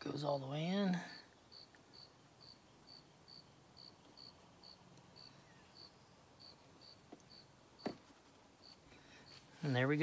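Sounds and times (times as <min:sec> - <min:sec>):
faint cricket chirping: 0:01.1 - 0:08.0, 0:08.6 - 0:09.4.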